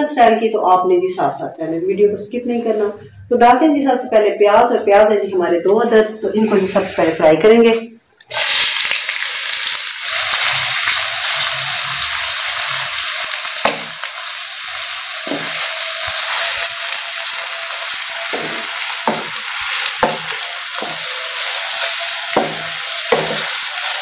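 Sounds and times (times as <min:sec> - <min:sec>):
onions sizzling in a pan: 0:08.3 - 0:24.0
utensil knocking against pan: 0:13.6 - 0:14.0, 0:18.3 - 0:21.3, 0:22.3 - 0:23.7.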